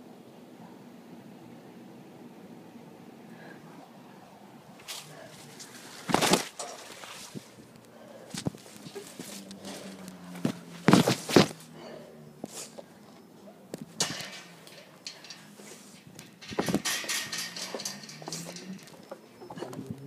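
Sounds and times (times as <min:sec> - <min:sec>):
fast footsteps and scuffs: 0:08.3 - 0:11.6.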